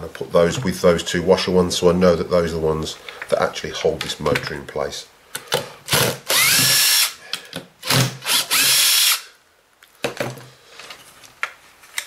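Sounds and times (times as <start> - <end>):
impact driver whine: 5.9 - 7.2.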